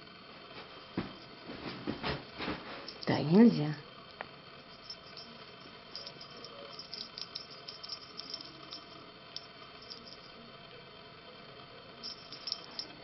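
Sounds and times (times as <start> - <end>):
kittens playing clicking and rattling: 4.7 - 10.3.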